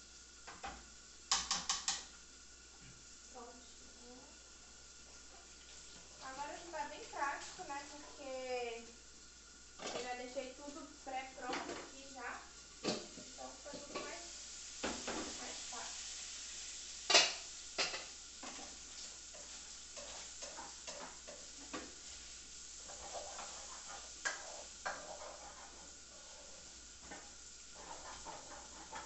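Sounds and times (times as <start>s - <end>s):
meat sizzling in a frying pan: 0.0s - 29.0s
utensil scraping and knocking pan: 17.2s - 22.2s, 22.8s - 29.0s.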